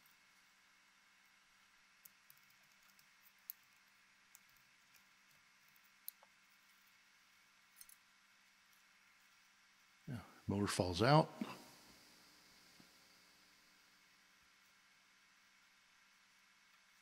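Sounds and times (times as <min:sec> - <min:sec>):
faint clicks of screwdriver and metal parts: 0:02.0 - 0:07.0, 0:07.6 - 0:09.4.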